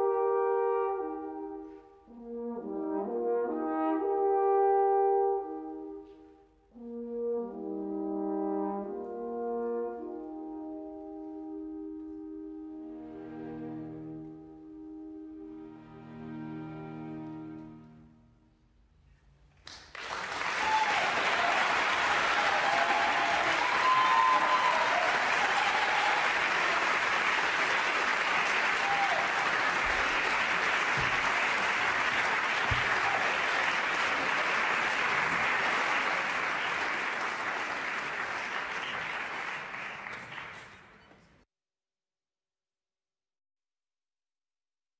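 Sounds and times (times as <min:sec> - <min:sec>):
audience applauding: 0:19.6 - 0:41.3.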